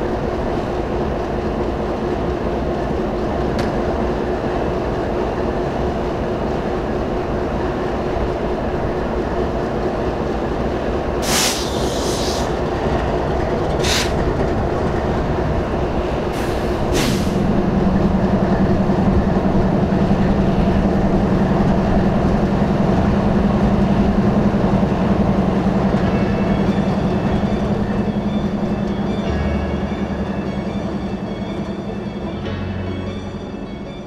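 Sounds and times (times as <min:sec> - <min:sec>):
locomotive engine rumble: 0:00.0 - 0:34.0
brief hissing bursts: 0:11.2 - 0:12.5.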